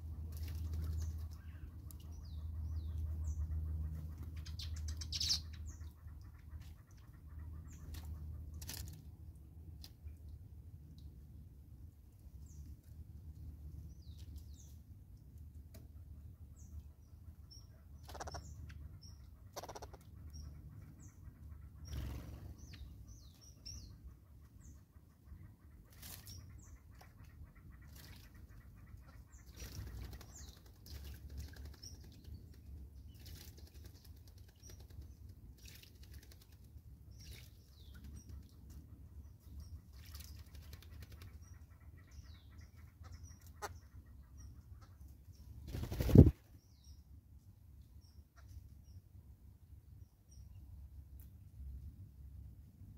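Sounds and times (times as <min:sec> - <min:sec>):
small birds chirping: 0:00.0 - 0:09.0, 0:13.7 - 0:49.1
loud flutter of wings: 0:21.9 - 0:22.6, 0:45.6 - 0:46.6
bird wingbeats and taps: 0:29.5 - 0:38.5, 0:40.0 - 0:41.4, 0:45.7 - 0:46.4.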